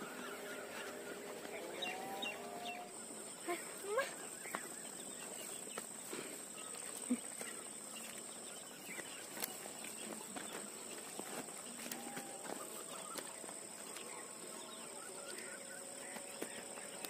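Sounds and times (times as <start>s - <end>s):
insects chirring: 0.0s - 17.0s
footsteps on mud and stones: 4.4s - 17.0s
faint animal calls: 11.1s - 17.0s.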